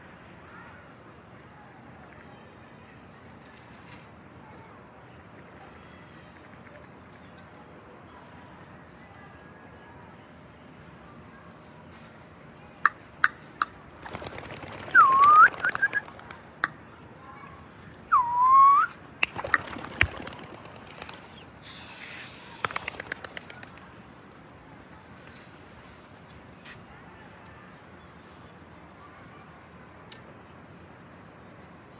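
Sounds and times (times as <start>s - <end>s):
wings fluttering: 14.0s - 16.5s, 19.2s - 24.0s
person whistling: 18.1s - 19.0s, 21.6s - 23.0s.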